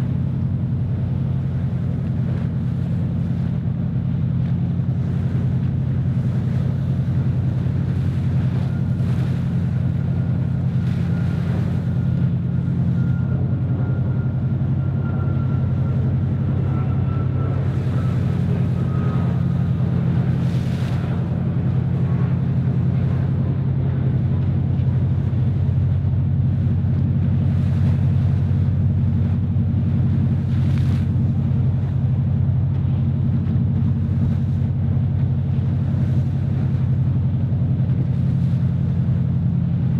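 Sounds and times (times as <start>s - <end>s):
boat engine drone: 0.0s - 39.9s
water rushing: 0.0s - 39.9s
faint high whine: 0.1s - 26.8s.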